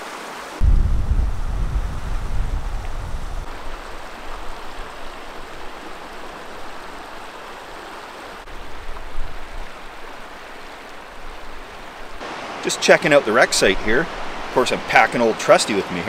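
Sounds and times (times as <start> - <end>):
river rushing over stones: 0.0 - 16.0
heavy low rumble: 0.6 - 5.0.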